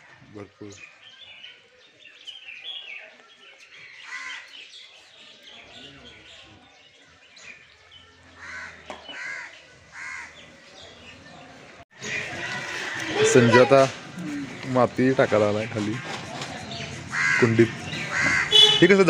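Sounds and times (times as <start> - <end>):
crow cawing: 8.4 - 10.3, 17.1 - 18.7.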